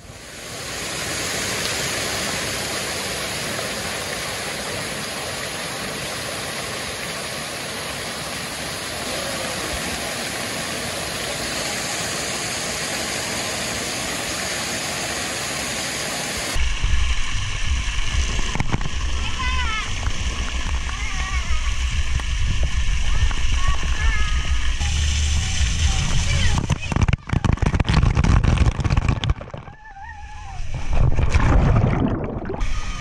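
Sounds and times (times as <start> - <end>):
stream water rushing: 0.0 - 29.8, 30.4 - 33.0
low rumble: 16.6 - 33.0.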